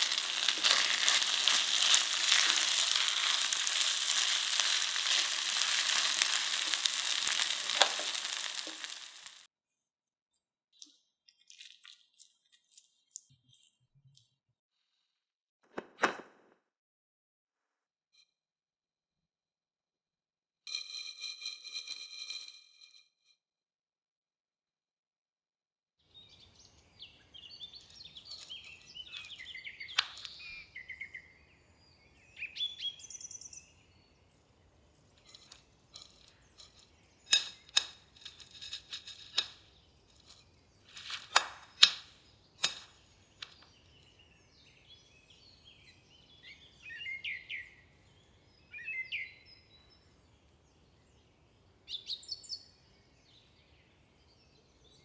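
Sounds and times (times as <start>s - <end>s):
birds chirping: 26.1s - 37.8s, 39.7s - 55.0s
metal spoon scraping ceramic bowl: 35.2s - 39.6s.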